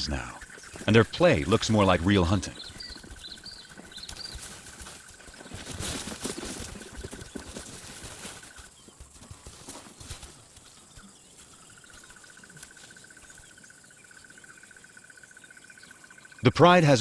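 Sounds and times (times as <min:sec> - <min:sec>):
lions scuffling: 0:00.1 - 0:13.6.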